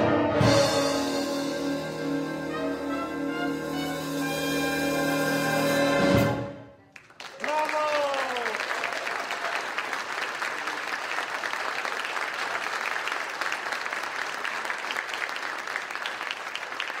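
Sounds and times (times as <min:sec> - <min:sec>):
audience applauding: 0:06.9 - 0:17.0.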